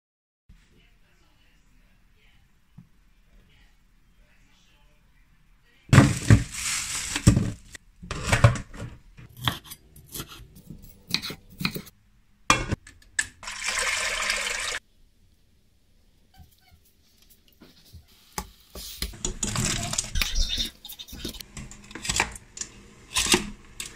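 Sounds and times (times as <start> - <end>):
running water: 13.4 - 14.8
water splashing in a sink: 13.4 - 14.8.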